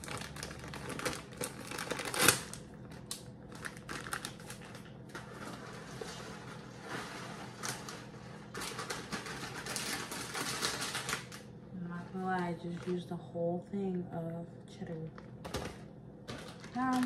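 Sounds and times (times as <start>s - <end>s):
plastic bag crinkling: 0.0s - 13.1s, 15.4s - 17.0s.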